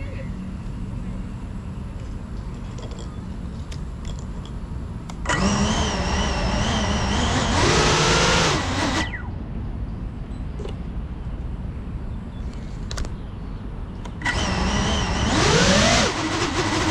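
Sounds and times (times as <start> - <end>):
drone motors whining: 5.1 - 9.4, 14.0 - 16.9
steady low rumble: 8.6 - 15.3.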